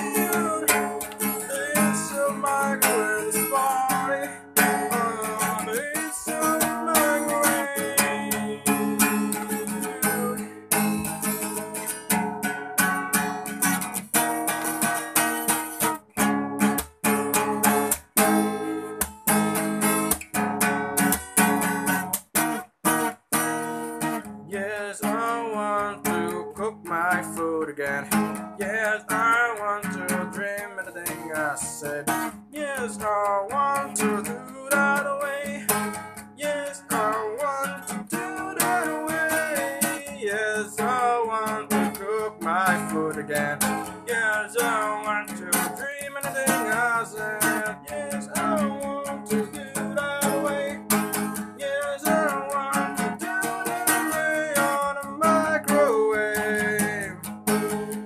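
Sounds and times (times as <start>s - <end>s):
man singing: 0.0s - 12.0s, 24.4s - 58.0s
acoustic guitar strummed: 0.0s - 58.0s.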